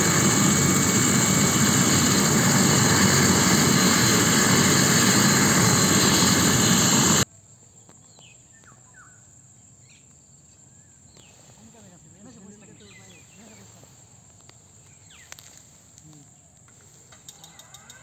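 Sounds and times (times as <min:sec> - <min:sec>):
helicopter rotor and engine whine: 0:00.0 - 0:07.2.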